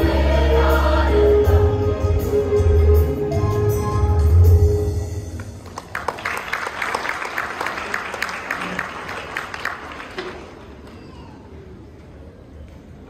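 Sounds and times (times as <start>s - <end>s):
choir chord: 0.0s - 5.2s
audience clapping: 5.4s - 11.1s.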